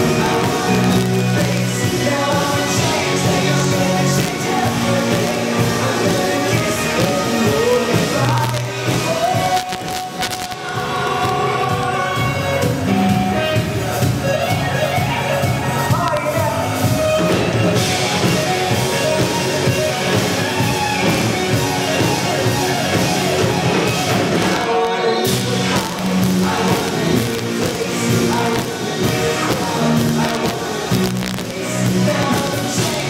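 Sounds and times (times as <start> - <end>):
male lead vocal: 0.0 - 14.3, 24.2 - 33.0
live rock band playing: 0.0 - 33.0.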